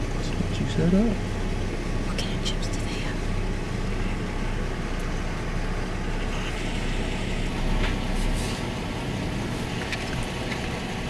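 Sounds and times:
car engine rumble from inside cabin: 0.0 - 11.0.

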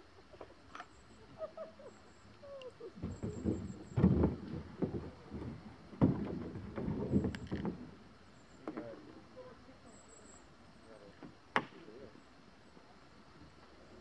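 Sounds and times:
paddle knocks: 3.0 - 8.0.

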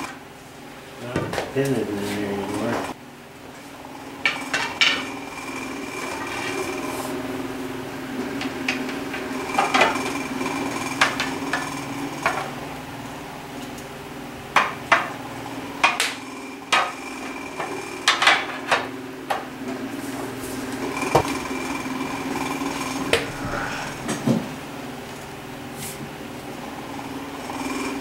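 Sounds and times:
steady hum: 0.0 - 18.2, 19.0 - 28.0.

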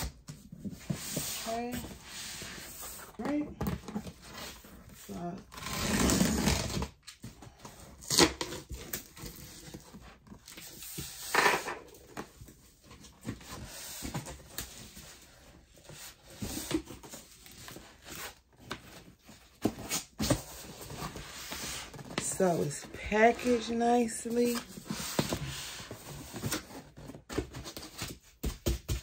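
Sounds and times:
cardboard rubbing and scraping: 0.6 - 6.9.

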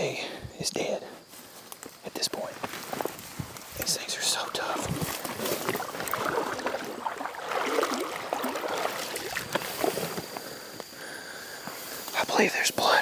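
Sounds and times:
boots splashing through water: 4.7 - 10.4.

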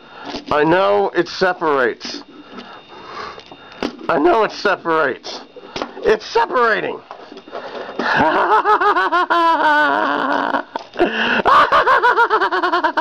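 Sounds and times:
man laughing: 8.0 - 13.0.

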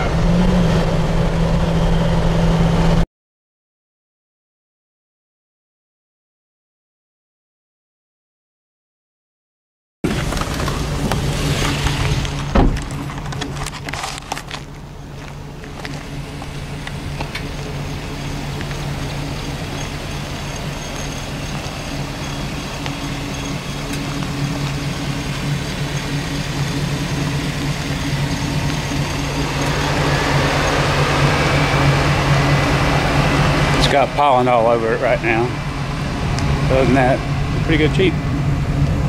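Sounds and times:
engine idling: 10.1 - 39.0.

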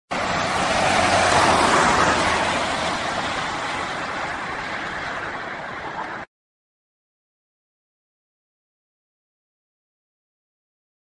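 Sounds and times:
vehicle driving past: 0.1 - 6.3.

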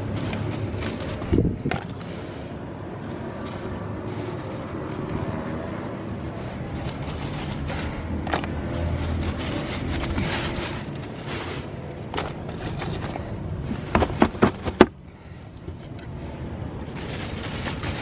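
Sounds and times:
wood chunks scraping and rustling: 0.0 - 2.3, 6.4 - 15.0, 16.8 - 18.0
sharp wooden knocks: 13.8 - 15.0.

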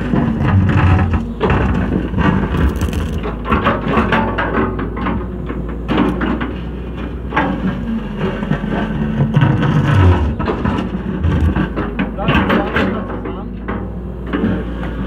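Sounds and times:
bucket scraping soil and rock: 0.0 - 4.0, 7.8 - 12.0
excavator diesel engine running: 0.0 - 15.0.

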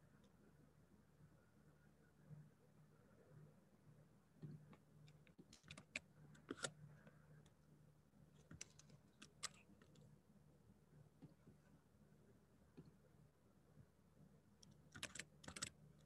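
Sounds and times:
faint low hum: 0.0 - 16.0
keyboard and mouse clicks: 4.4 - 6.8, 8.4 - 10.0, 14.6 - 15.8.

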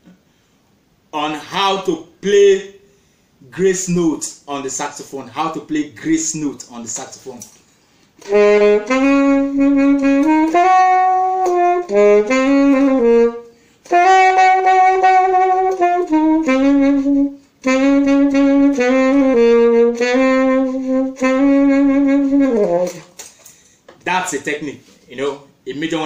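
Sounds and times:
short breaths: 2.8 - 3.4, 13.5 - 13.9, 23.2 - 23.9
alto saxophone melody: 8.2 - 23.2.

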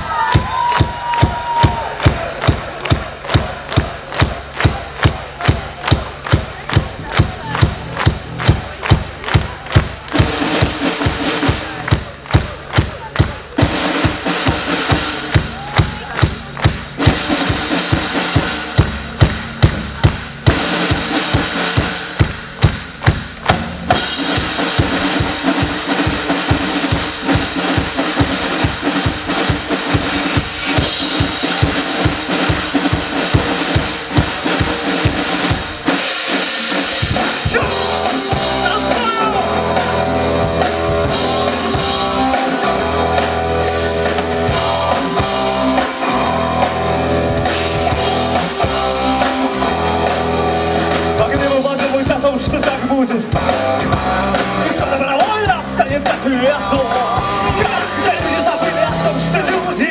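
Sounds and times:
drum kit: 0.0 - 59.9
marching drums struck in unison: 0.0 - 59.9
rock music with guitar: 23.2 - 59.9.

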